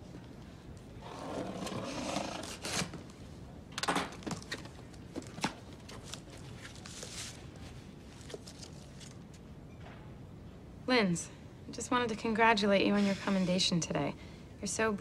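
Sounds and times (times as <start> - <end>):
cardboard tearing: 2.1 - 3.0.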